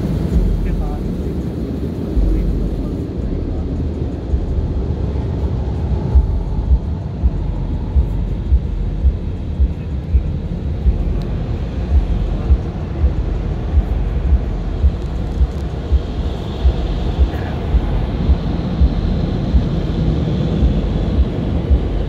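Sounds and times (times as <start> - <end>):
car wash machinery rumble: 0.0 - 22.0
regular thumps: 6.1 - 19.9.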